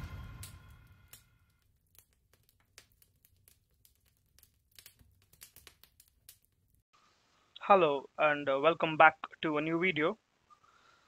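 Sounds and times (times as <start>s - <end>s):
faint crackles and clicks: 0.3s - 6.8s.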